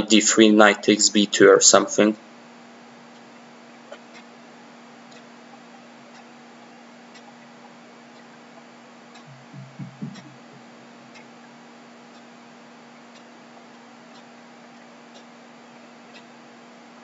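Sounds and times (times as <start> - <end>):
steady low hum: 0.0 - 17.0
clock ticking: 3.9 - 12.4, 13.0 - 16.4
person humming: 9.3 - 10.7.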